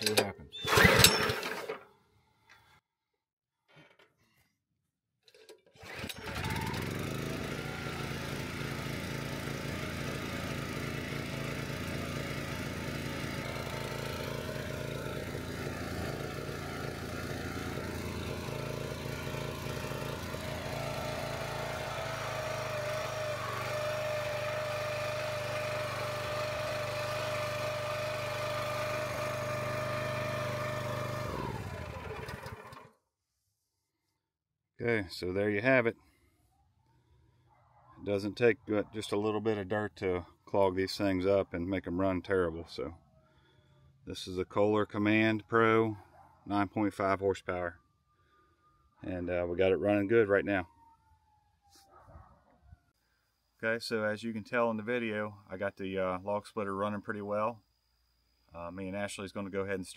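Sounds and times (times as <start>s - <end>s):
small engine running: 0.6s - 1.7s, 5.8s - 33.0s, 43.2s - 44.0s.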